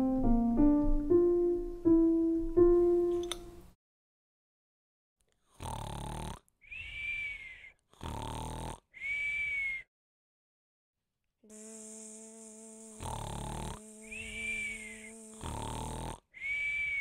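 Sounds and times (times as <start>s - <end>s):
cartoon snoring with whistle: 5.6s - 9.9s, 12.9s - 17.0s.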